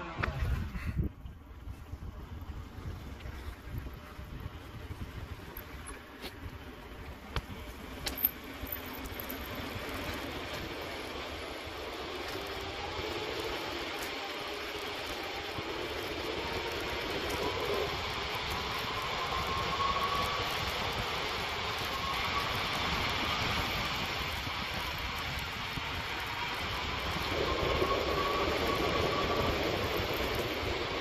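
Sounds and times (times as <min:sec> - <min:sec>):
vehicle engine and road noise: 0:00.0 - 0:31.0
faint rising whine: 0:01.4 - 0:31.0.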